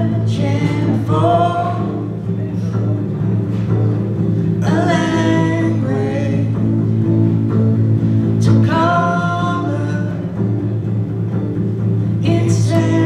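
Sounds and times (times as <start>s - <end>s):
person singing: 0.0s - 2.5s, 4.5s - 7.0s, 8.4s - 10.6s, 12.2s - 13.0s
acoustic guitar: 0.0s - 13.0s
double bass: 0.0s - 13.0s.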